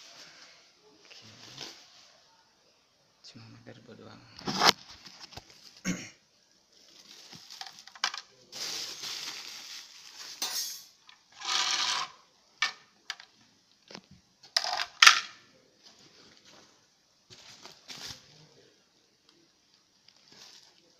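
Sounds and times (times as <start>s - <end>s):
plastic wrap rustling: 6.7s - 10.4s, 17.3s - 18.6s, 19.7s - 20.9s.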